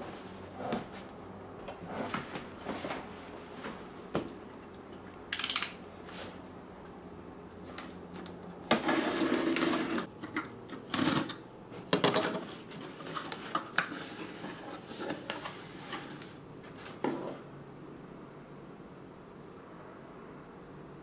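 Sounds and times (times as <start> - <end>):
cardboard rustling and scraping: 0.0 - 3.9, 12.3 - 17.5.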